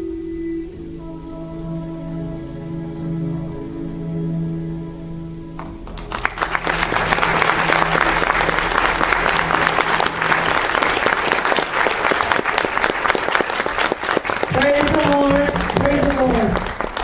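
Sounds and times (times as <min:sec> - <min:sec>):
crowd applauding: 0:05.6 - 0:17.0.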